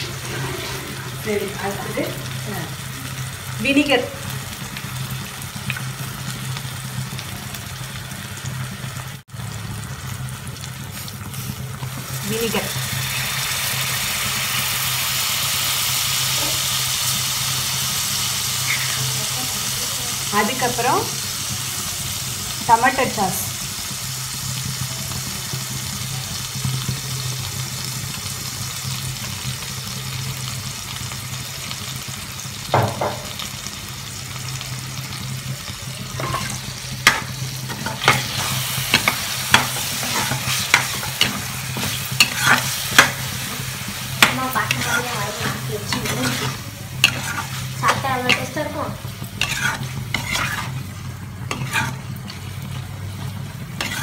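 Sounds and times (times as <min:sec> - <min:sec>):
spatula scraping pan: 0:00.0 - 0:01.8, 0:36.1 - 0:52.8, 0:53.6 - 0:54.0
food sizzling in pan: 0:00.0 - 0:54.0.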